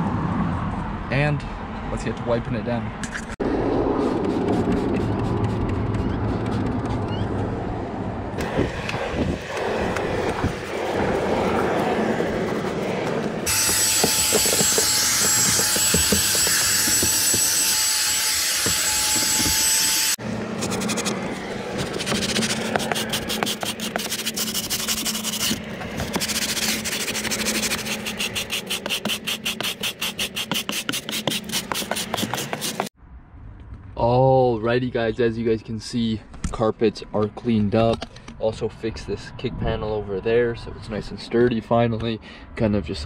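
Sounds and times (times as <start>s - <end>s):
brush scrubbing carpet: 4.2s - 7.0s, 20.6s - 32.9s.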